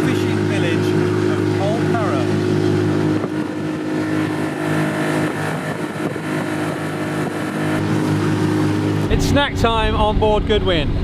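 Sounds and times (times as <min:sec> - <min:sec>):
boat engine running: 0:00.0 - 0:11.0
water rushing past hull: 0:00.3 - 0:10.0
wind rushing: 0:02.2 - 0:11.0.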